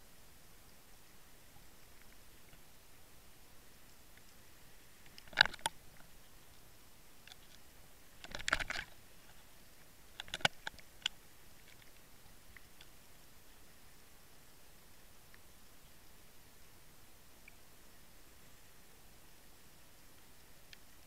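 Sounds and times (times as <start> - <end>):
underwater clicks and rattles: 5.0 - 6.6, 7.2 - 9.5, 10.1 - 13.0.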